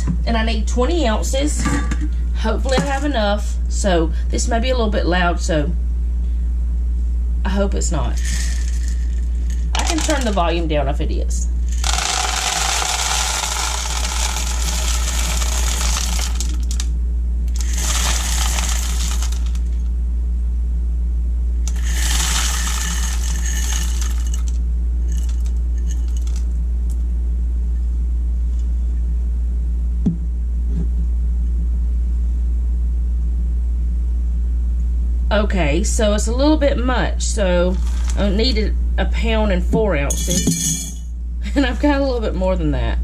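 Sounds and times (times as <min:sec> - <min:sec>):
steady low hum: 0:00.0 - 0:43.0
dried beans rattling into container: 0:08.0 - 0:10.5, 0:11.6 - 0:16.9, 0:17.6 - 0:19.8, 0:21.7 - 0:26.5, 0:37.7 - 0:38.3
single knock: 0:30.0 - 0:30.2.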